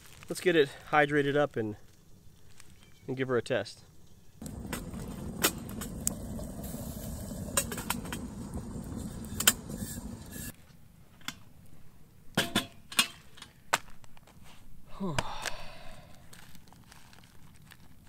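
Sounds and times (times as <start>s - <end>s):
campfire rushing: 4.4s - 10.5s
fire crackling pops: 4.4s - 10.5s
kettle clicks and knocks: 4.5s - 6.5s, 7.4s - 10.3s.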